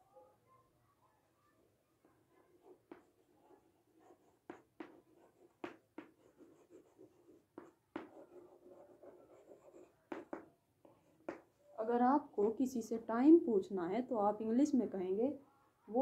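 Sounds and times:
chalk scratching: 0:02.6 - 0:11.4
chalk tapping on chalkboard: 0:02.7 - 0:03.3, 0:04.3 - 0:11.5.

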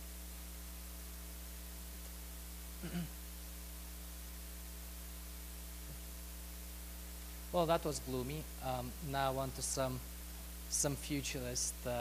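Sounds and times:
electrical mains hum: 0:00.0 - 0:12.0
faint recording hiss: 0:00.0 - 0:12.0
person murmuring: 0:02.8 - 0:03.1.

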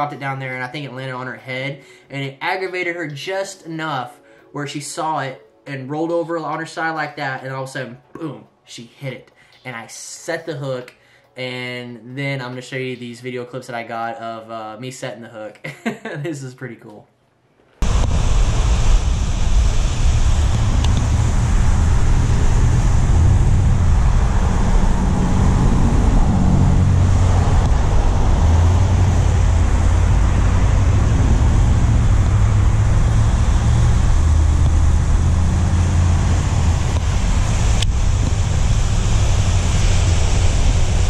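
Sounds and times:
wind buffeting microphone: 0:17.8 - 0:41.0.

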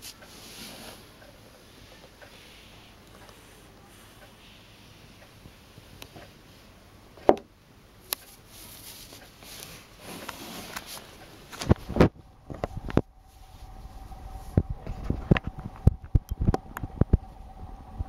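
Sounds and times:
fabric and camera rustling: 0:08.2 - 0:17.3.

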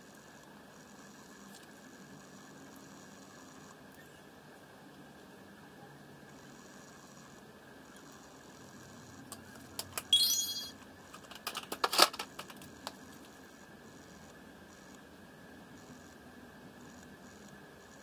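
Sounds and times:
clatter of tools: 0:09.3 - 0:13.0.

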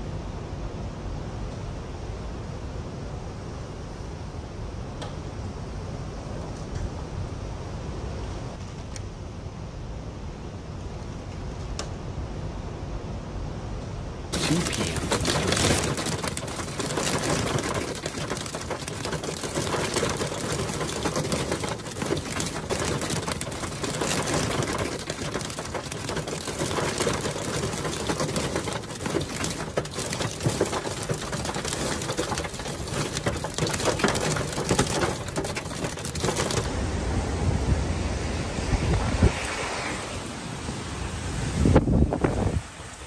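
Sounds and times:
strong wind buffeting microphone: 0:14.3 - 0:42.9
rain and debris rattling: 0:14.3 - 0:43.0.

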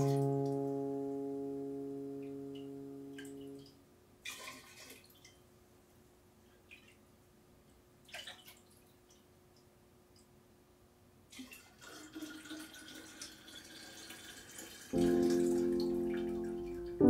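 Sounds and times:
liquid pouring into a glass jar: 0:11.3 - 0:15.0.

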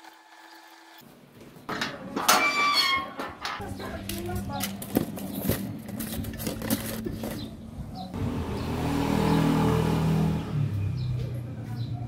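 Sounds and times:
vehicle engine running: 0:08.2 - 0:11.8.

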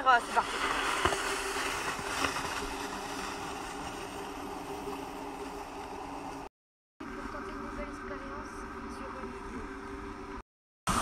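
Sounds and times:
sled sliding over snow: 0:00.0 - 0:06.5.

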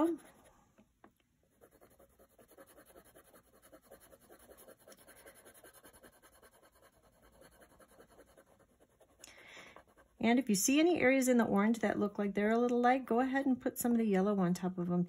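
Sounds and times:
colored pencil scratching on card: 0:00.0 - 0:00.5, 0:01.5 - 0:10.2.

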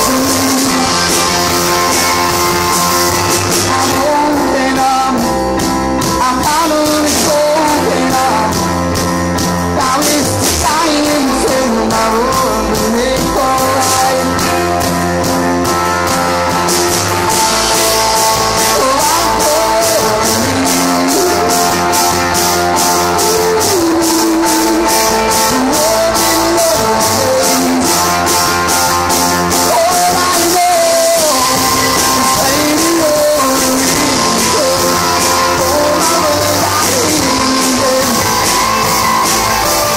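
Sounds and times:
cymbals keeping a beat: 0:00.0 - 0:39.9
live rock band playing: 0:00.0 - 0:39.9
man singing: 0:00.0 - 0:39.9.

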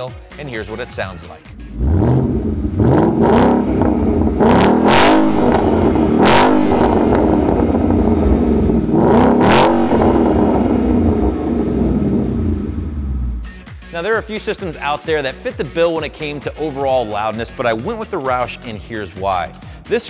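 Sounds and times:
car engine revving: 0:01.5 - 0:13.6
car engine idling: 0:01.5 - 0:13.7.

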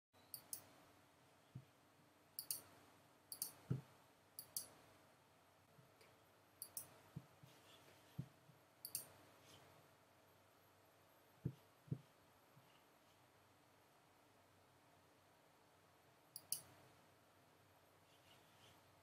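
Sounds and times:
computer mouse clicks: 0:00.3 - 0:00.7, 0:02.4 - 0:02.7, 0:03.3 - 0:03.8, 0:04.4 - 0:04.8, 0:06.6 - 0:07.0, 0:08.8 - 0:09.2, 0:16.4 - 0:16.8.

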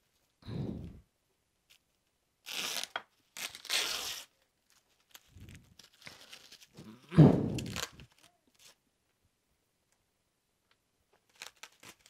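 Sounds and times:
packing tape ripping: 0:02.4 - 0:08.8, 0:11.3 - 0:12.0.

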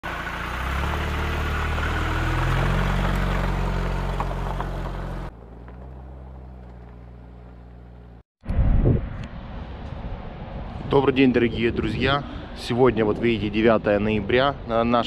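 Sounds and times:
car engine running: 0:00.0 - 0:08.2.

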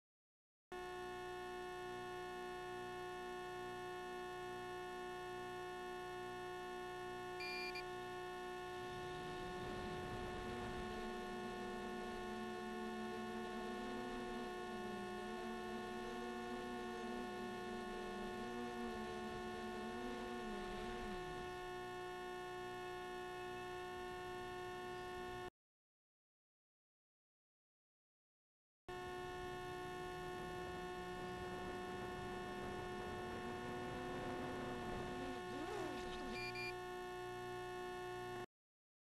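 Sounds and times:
electronic hum and whine: 0:00.7 - 0:25.5, 0:28.9 - 0:38.5
drone motors whirring: 0:00.8 - 0:25.5, 0:28.9 - 0:38.4
short beep: 0:07.4 - 0:07.8, 0:36.3 - 0:36.8.

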